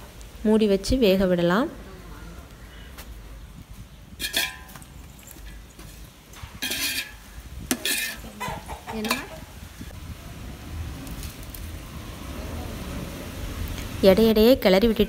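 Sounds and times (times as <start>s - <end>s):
metal ladle scraping a pot: 4.2s - 9.4s.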